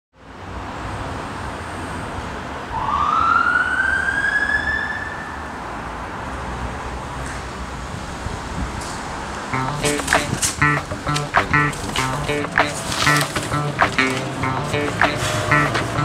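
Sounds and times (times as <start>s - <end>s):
street traffic rumble: 5.6s - 16.0s.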